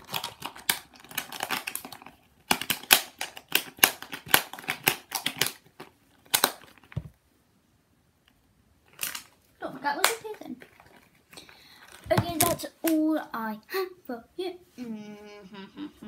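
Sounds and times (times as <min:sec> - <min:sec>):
plastic tub clicks and crinkles: 0:00.0 - 0:07.2, 0:10.0 - 0:13.0.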